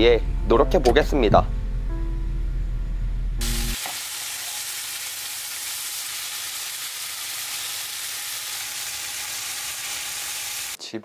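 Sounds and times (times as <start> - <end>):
low hum: 0.0 - 3.8
music notes: 0.3 - 3.8
meat sizzling in a frying pan: 3.4 - 10.8.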